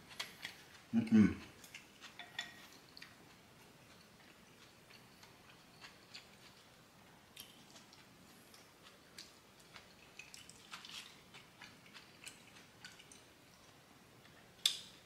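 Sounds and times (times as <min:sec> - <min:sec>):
quiet chewing: 0:00.0 - 0:15.0.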